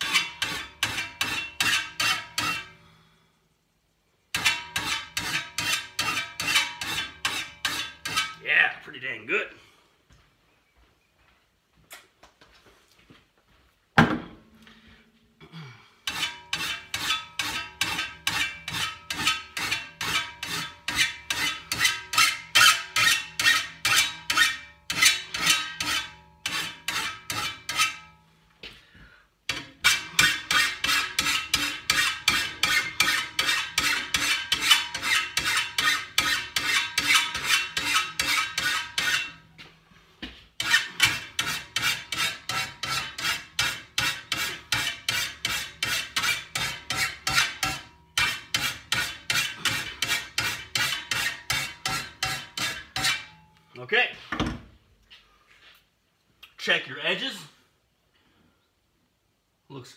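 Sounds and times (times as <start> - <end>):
file rasping on metal blade: 0.0 - 2.8, 4.4 - 8.4, 16.0 - 28.2, 29.5 - 39.4, 40.6 - 53.4.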